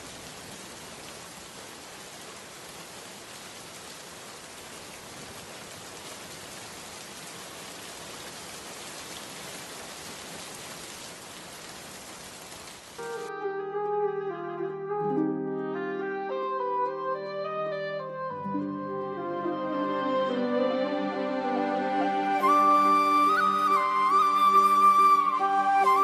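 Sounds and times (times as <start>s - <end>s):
steady rushing water: 0.0s - 13.3s, 19.8s - 26.0s.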